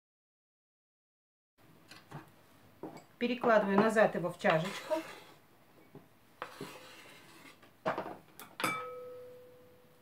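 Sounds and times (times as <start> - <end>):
knife scraping cutting board: 4.4 - 5.4, 6.4 - 7.7
dish clinking and ringing: 8.6 - 9.3.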